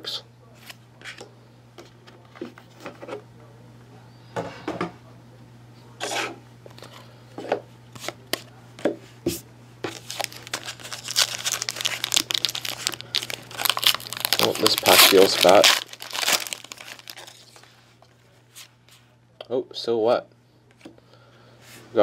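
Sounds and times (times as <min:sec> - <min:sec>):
foil wrapper crinkling and tearing: 0:09.9 - 0:17.8.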